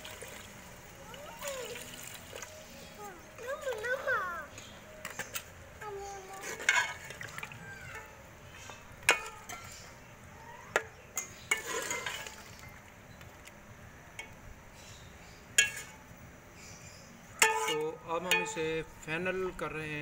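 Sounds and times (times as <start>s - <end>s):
ladle clinking against metal pot: 6.4s - 8.1s, 9.0s - 9.9s, 10.7s - 12.6s, 15.5s - 16.0s, 17.4s - 18.6s
liquid sloshing in pot: 6.4s - 9.9s, 10.7s - 13.5s.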